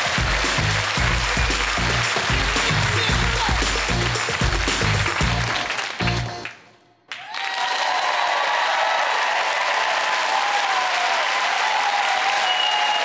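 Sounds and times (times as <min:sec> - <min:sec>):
music: 0:00.0 - 0:07.0
audience applauding: 0:00.0 - 0:13.0.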